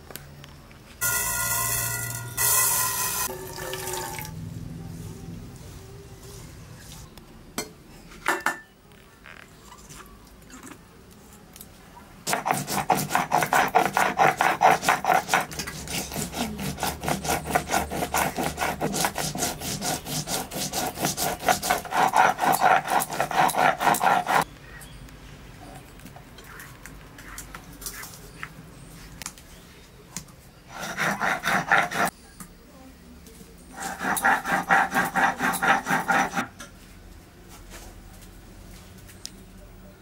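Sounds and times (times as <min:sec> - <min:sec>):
stone pestle grinding seeds: 0:12.3 - 0:24.5, 0:30.8 - 0:32.1, 0:33.8 - 0:36.5.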